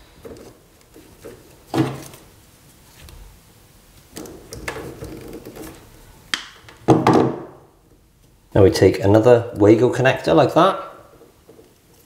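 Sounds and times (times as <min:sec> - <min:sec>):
handling noise of electrical cable: 0:00.0 - 0:08.4, 0:11.1 - 0:12.0.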